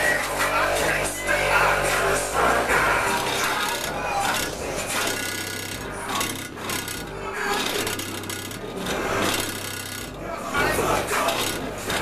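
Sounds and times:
low bass notes: 0.0s - 7.7s.

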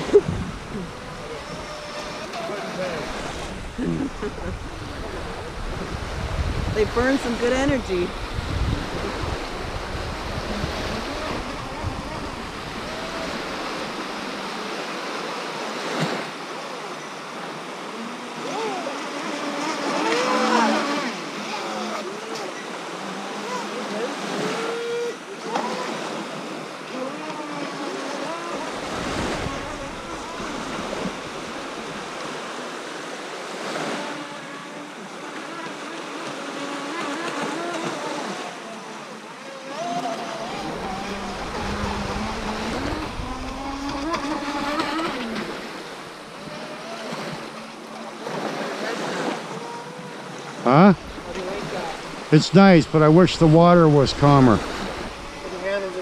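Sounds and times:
wind buffeting microphone: 0.0s - 14.3s, 28.6s - 32.3s, 40.5s - 46.3s
small waves lapping on shore: 0.0s - 56.0s.

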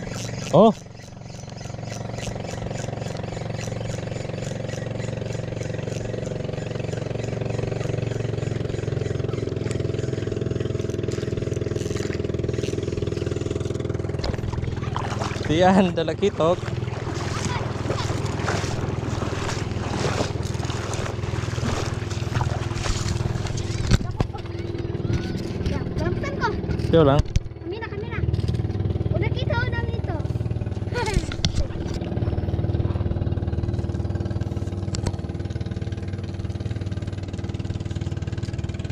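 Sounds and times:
small boat engine idling: 0.0s - 38.9s.

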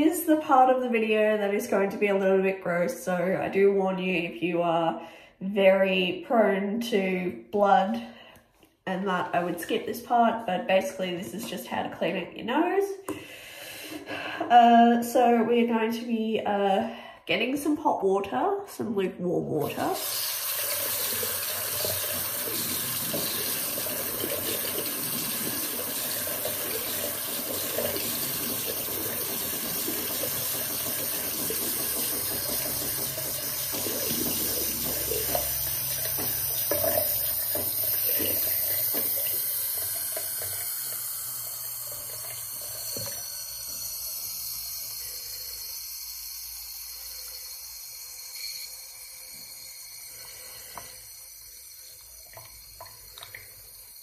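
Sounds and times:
tap running into sink: 20.0s - 41.1s, 41.9s - 43.8s.

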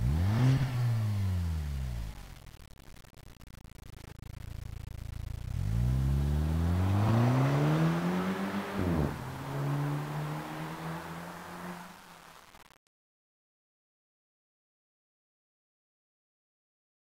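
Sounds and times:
car engine accelerating: 0.0s - 2.7s, 3.4s - 12.6s.

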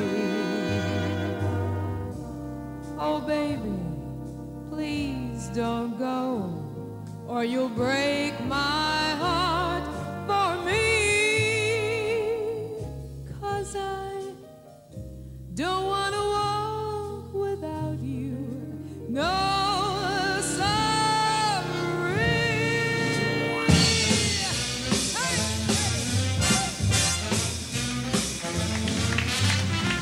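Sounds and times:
big band playing: 0.0s - 15.4s, 19.1s - 30.0s
woman singing: 4.7s - 6.7s, 7.3s - 14.4s, 15.5s - 24.2s.

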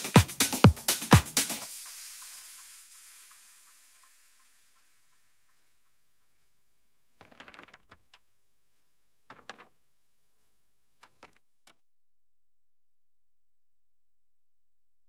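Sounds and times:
faint hiss: 0.0s - 7.1s.

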